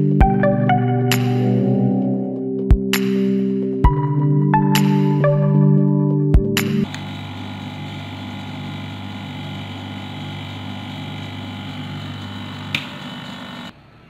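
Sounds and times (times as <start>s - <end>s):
machine motor hum: 6.8s - 14.0s.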